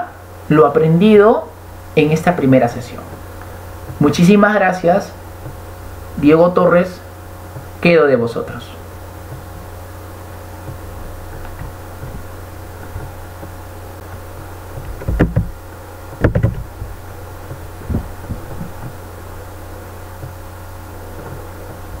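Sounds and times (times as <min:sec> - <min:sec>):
steady electrical hum: 0:00.0 - 0:22.0
soft thumps and knocks on desk: 0:05.4 - 0:05.7, 0:09.2 - 0:09.6, 0:10.6 - 0:13.6, 0:14.7 - 0:19.0.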